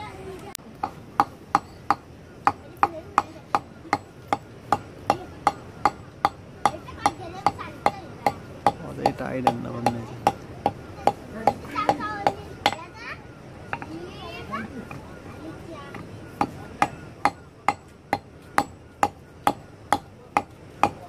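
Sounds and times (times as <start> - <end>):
hammer striking stone: 0.8 - 12.8, 16.4 - 21.0.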